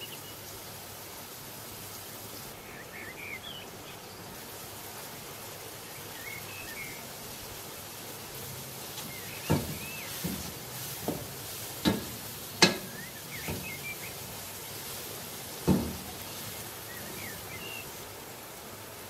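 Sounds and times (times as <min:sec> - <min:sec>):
frying hiss: 0:00.0 - 0:19.0
spatula knocking on a pan: 0:09.0 - 0:13.9, 0:15.6 - 0:16.4.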